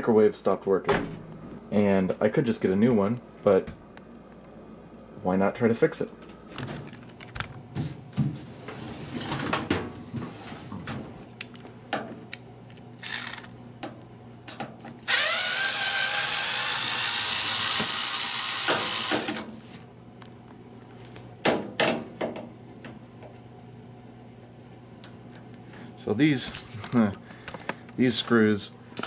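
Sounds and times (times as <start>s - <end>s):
power drill running: 13.0s - 13.5s, 15.0s - 19.4s.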